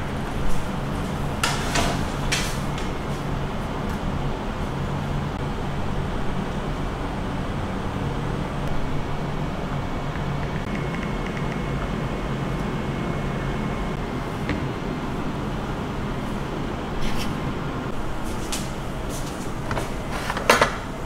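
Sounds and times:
distant city traffic rumble: 0:00.0 - 0:21.0.

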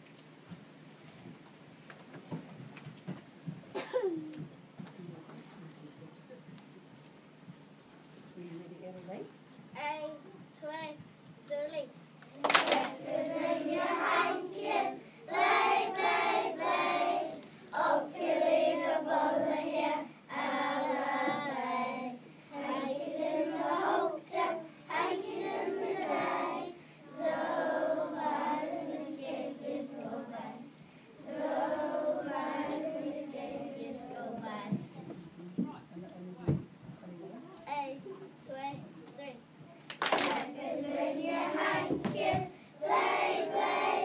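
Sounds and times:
children singing together: 0:12.6 - 0:34.8, 0:40.3 - 0:44.0.

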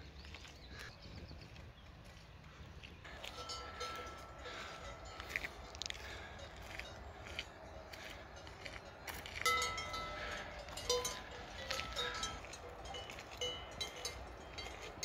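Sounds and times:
cowbells clanking: 0:03.1 - 0:15.0.

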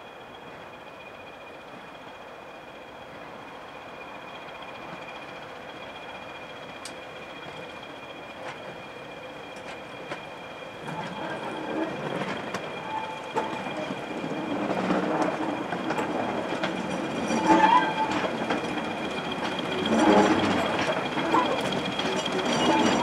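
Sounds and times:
diesel locomotive: 0:00.0 - 0:23.0
train wheels clicking over rail joints: 0:04.4 - 0:23.0.

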